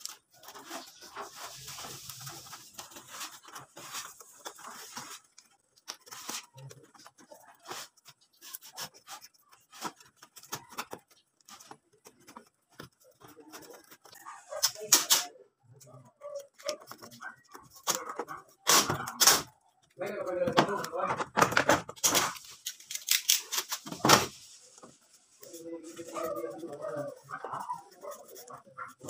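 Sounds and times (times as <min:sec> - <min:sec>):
foil duct rustling: 0:00.0 - 0:15.0, 0:21.9 - 0:29.0
foil crinkling: 0:00.0 - 0:15.1, 0:16.4 - 0:29.0.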